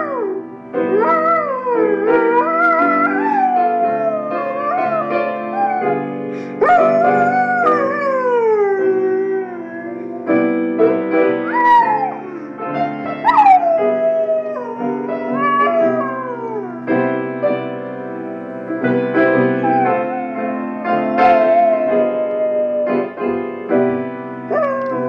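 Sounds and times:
dog howling: 0.0 - 10.3, 11.4 - 12.5, 13.1 - 16.9, 19.4 - 23.1, 24.5 - 25.0
jazz music: 0.0 - 25.0.

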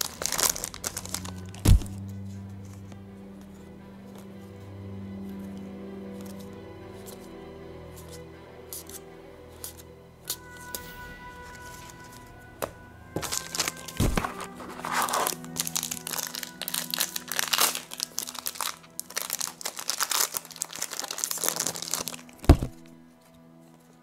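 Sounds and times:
trading cards rustling and clicking: 0.0 - 2.0, 9.6 - 24.0
background music: 0.0 - 24.0.

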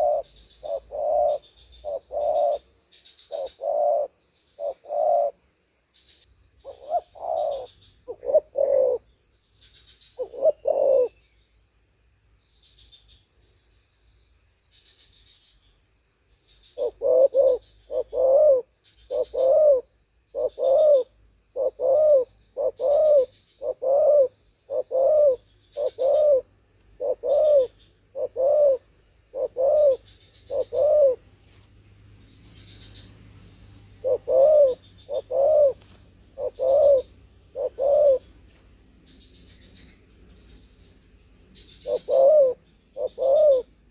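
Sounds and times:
dove cooing: 0.0 - 2.7, 3.3 - 5.4, 6.6 - 9.1, 10.2 - 11.2, 16.8 - 31.2, 34.0 - 38.4, 41.7 - 43.9
high insect buzz: 0.0 - 43.9.

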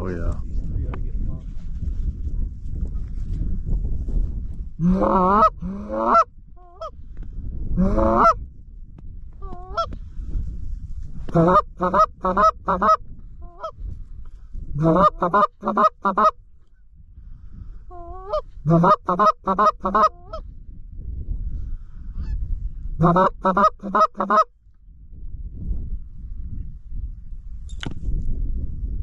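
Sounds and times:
wind rumble: 0.0 - 29.0
goose call honks: 4.8 - 6.9, 7.8 - 8.4, 11.3 - 13.7, 14.8 - 16.4, 17.9 - 20.4, 23.0 - 24.5.

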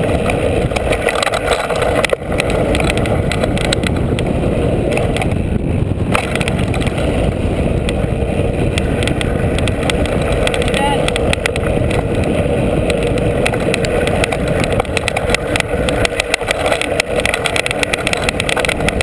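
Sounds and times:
bike tyre rumbling on dirt: 0.0 - 19.0
wind: 0.0 - 19.0
rattling clicks and knocks: 0.1 - 4.3, 4.9 - 5.4, 6.0 - 8.0, 8.7 - 19.0.

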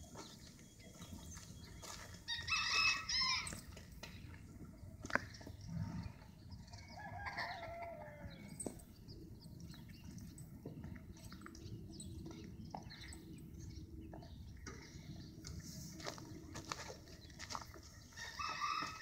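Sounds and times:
rooster crowing: 2.3 - 3.6, 6.9 - 8.6, 18.2 - 19.0.

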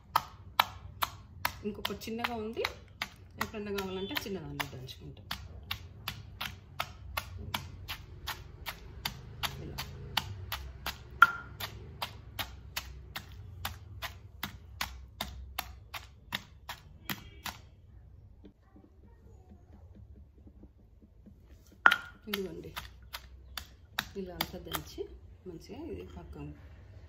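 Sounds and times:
pestle pounding in stone mortar: 0.0 - 17.8, 21.7 - 25.1.

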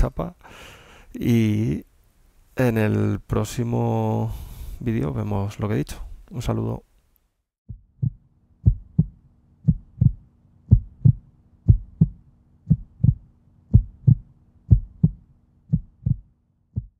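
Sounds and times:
faint low hum: 0.0 - 16.9
heartbeat-like double thumps: 7.7 - 16.9.

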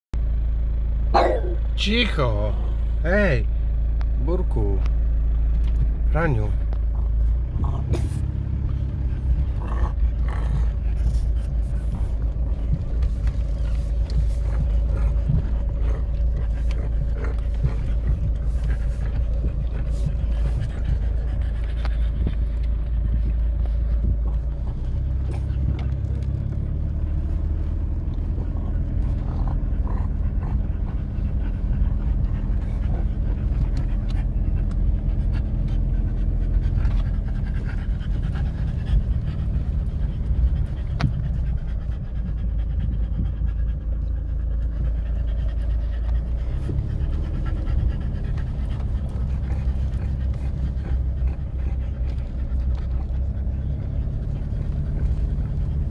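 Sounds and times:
dog panting: 4.4 - 55.9
car driving over bumpy grass: 5.0 - 55.9.

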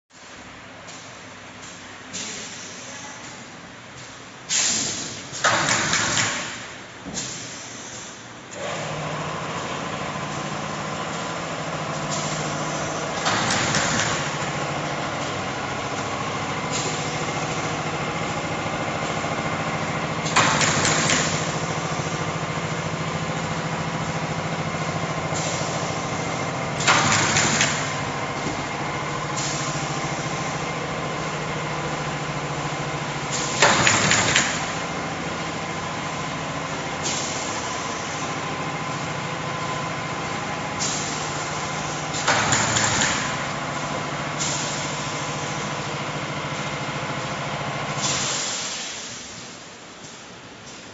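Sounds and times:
machine humming: 8.5 - 48.2.

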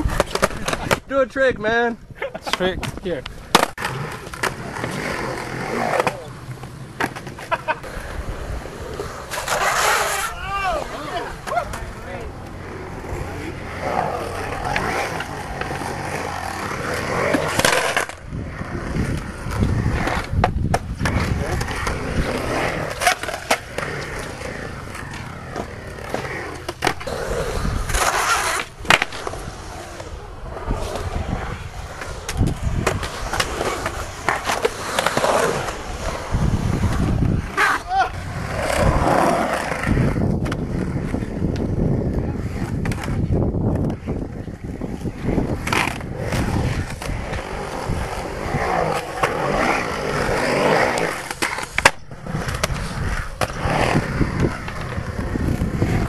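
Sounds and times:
skateboard wheels rolling on concrete: 0.0 - 56.0.

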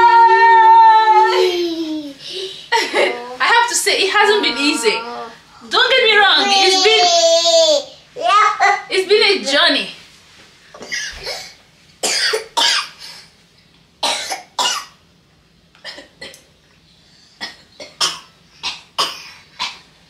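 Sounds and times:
person coughing: 10.8 - 13.0, 14.0 - 14.9.

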